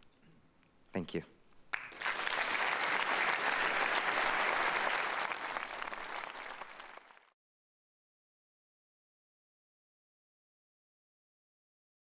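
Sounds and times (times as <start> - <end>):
audience applauding: 1.7 - 7.4.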